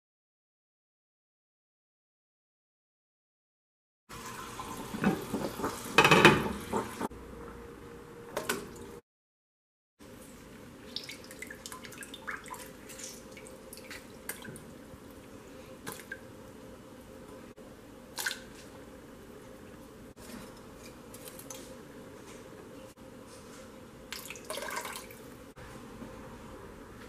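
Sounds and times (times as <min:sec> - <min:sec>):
cookware clattering: 0:05.0 - 0:07.1
juice dripping and splashing: 0:10.9 - 0:16.2.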